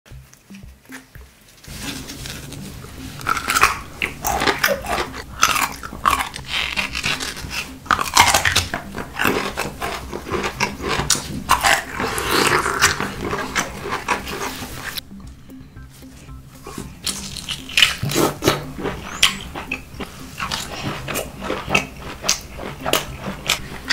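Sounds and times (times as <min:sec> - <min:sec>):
wet smacking chewing: 0:02.2 - 0:15.4, 0:16.6 - 0:23.9
crunching bites: 0:03.2 - 0:15.0, 0:16.7 - 0:23.9.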